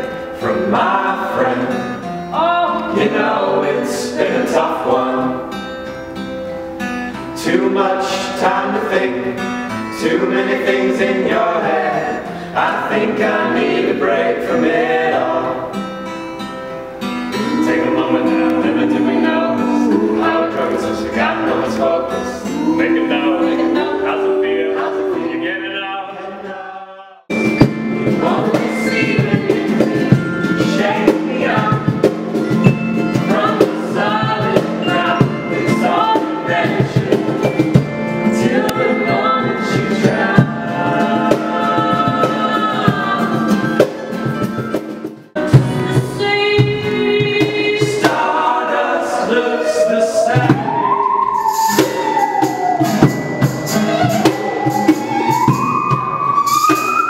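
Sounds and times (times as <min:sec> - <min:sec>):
voices singing together: 0:00.0 - 0:05.7, 0:07.2 - 0:16.0, 0:17.3 - 0:44.6, 0:45.3 - 0:57.0
acoustic guitar: 0:00.0 - 0:57.0
high voice sliding up and down: 0:17.4 - 0:26.3, 0:49.0 - 0:53.2
percussion: 0:27.3 - 0:48.8, 0:50.3 - 0:57.0.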